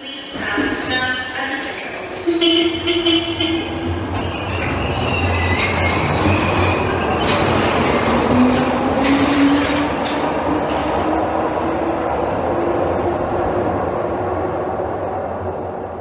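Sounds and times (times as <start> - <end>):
train wheels rumbling: 0.2 - 16.0
wheel squeal: 4.2 - 8.1.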